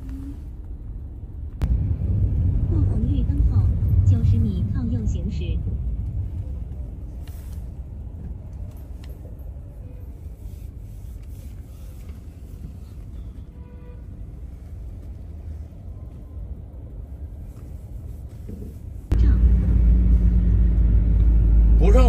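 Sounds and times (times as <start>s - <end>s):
car engine and road rumble: 0.0s - 22.0s.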